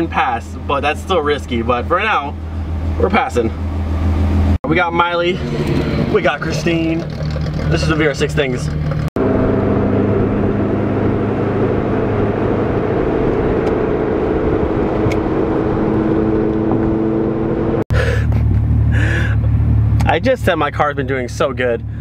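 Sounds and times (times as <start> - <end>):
car engine and exhaust droning: 0.0 - 22.0.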